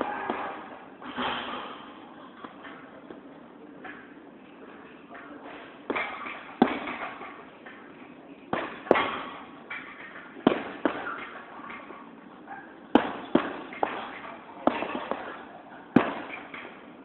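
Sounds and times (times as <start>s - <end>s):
punches thudding on heavy bag: 10.4s - 11.2s, 13.0s - 15.3s, 16.0s - 16.4s.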